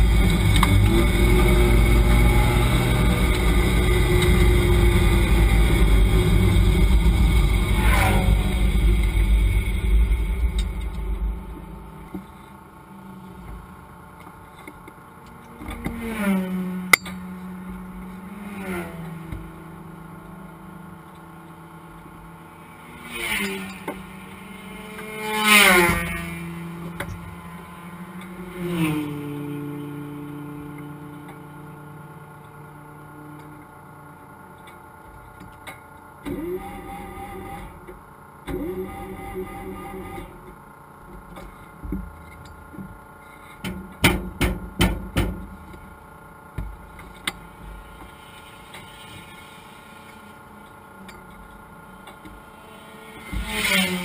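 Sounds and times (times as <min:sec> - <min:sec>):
race car engine revving: 0:00.0 - 0:14.0, 0:15.2 - 0:33.9.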